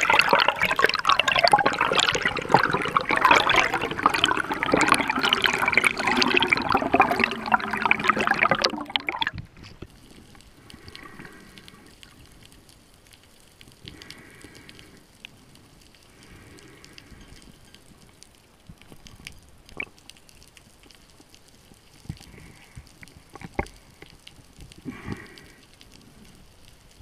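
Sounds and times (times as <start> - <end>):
underwater hush: 0.0 - 9.4
water rushing and bubbling: 0.0 - 9.6.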